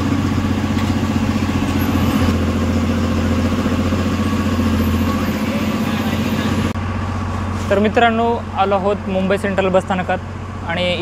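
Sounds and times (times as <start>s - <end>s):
bus diesel engine running: 0.0s - 11.0s.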